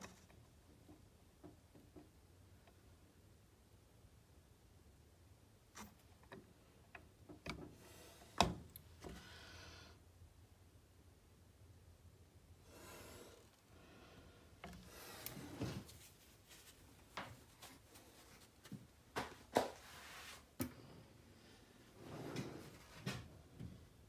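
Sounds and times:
rustling and scraping: 0:12.7 - 0:20.7, 0:21.8 - 0:23.7.

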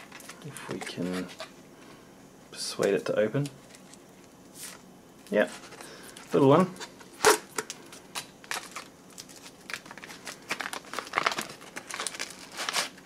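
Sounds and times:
foil pouch crinkling: 0:07.2 - 0:13.0.

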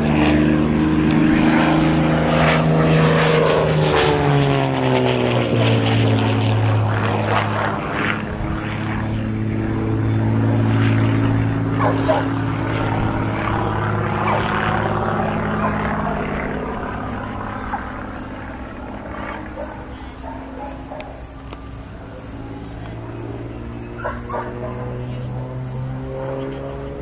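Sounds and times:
crickets chirping: 0:00.0 - 0:27.0
propeller plane engine drone: 0:00.0 - 0:27.0.

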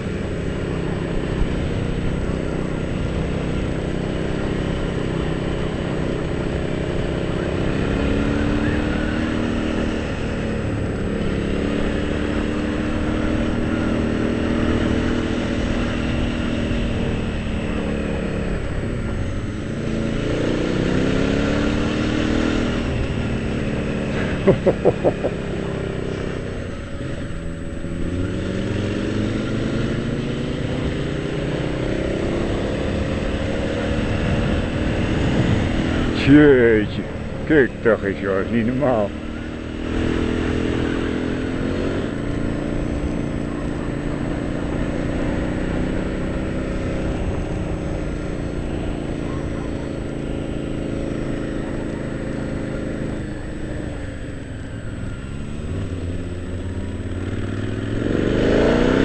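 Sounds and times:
motorcycle engine revving: 0:00.0 - 0:59.0
wind rush: 0:34.0 - 0:36.2.

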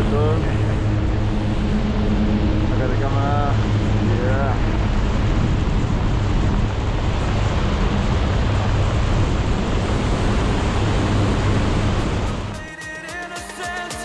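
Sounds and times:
wind rushing over microphone: 0:00.0 - 0:12.6.

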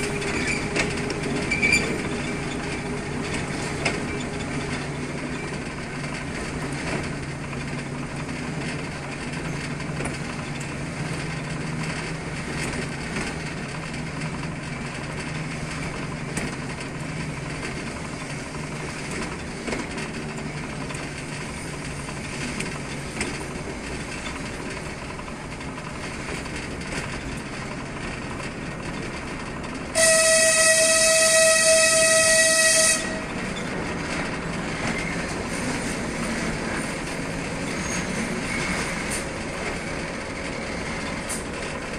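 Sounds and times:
locomotive engine drone: 0:00.0 - 0:41.9
wheels on rails: 0:00.0 - 0:41.9
locomotive horn blast: 0:29.9 - 0:33.4.

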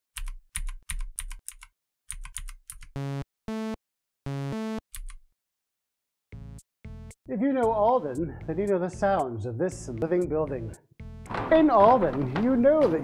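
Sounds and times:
computer keyboard typing: 0:00.1 - 0:03.0, 0:05.0 - 0:05.2.

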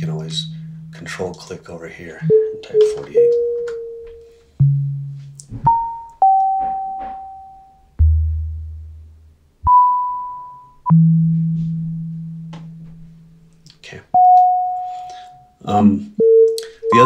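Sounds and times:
synth tones at random pitches: 0:02.1 - 0:07.1.

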